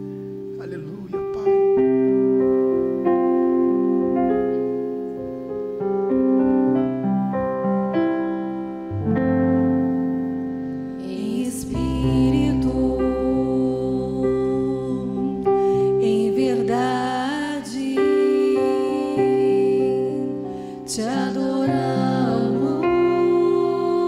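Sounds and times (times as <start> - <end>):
keyboard chords: 0.0 - 24.0
deep bass: 10.7 - 16.7.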